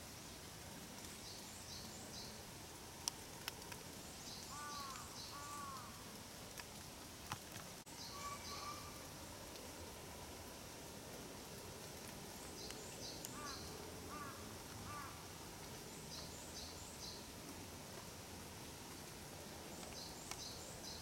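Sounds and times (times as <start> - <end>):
faint rain: 0.0 - 21.0
raindrops tapping umbrella: 3.0 - 7.9, 18.7 - 21.0
birds chirping: 4.2 - 5.9, 12.4 - 15.2
lower bird calls: 4.2 - 6.1, 8.0 - 9.1, 12.5 - 15.2.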